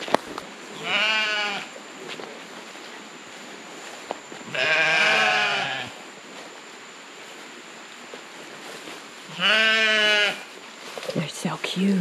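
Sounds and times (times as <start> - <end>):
sheep bleating: 0.8 - 1.7, 4.5 - 5.9, 9.3 - 10.5.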